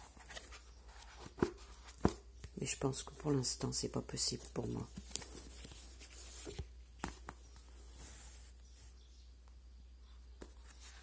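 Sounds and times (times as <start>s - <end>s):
book pages rustling and sliding: 0.0s - 2.6s, 4.2s - 8.9s.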